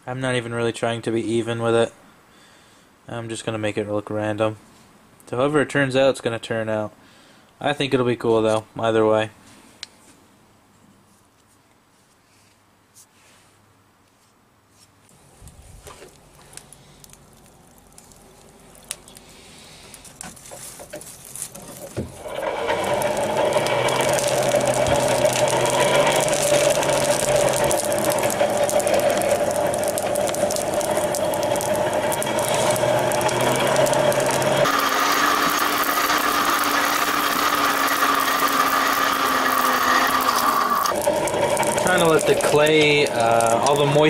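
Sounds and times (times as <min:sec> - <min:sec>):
light clicks of blade in coals: 0:15.5 - 0:20.6
forge blower running: 0:21.8 - 0:44.0.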